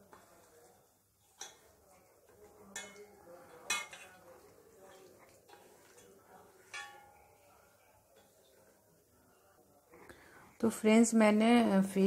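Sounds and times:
faint handling sounds: 0.0 - 10.7
metal bowl clinking: 1.2 - 8.7.

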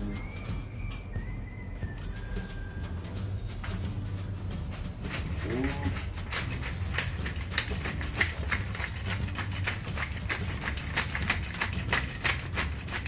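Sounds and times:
pepper mill clicking: 5.0 - 13.0.

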